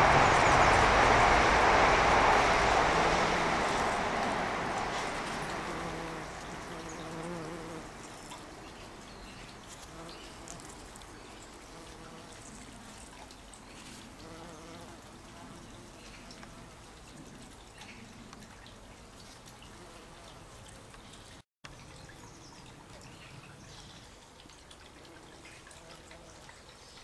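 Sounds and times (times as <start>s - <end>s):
background rumble: 0.0s - 19.2s
bumblebee buzzing: 2.8s - 8.8s, 9.6s - 13.1s, 13.8s - 17.0s.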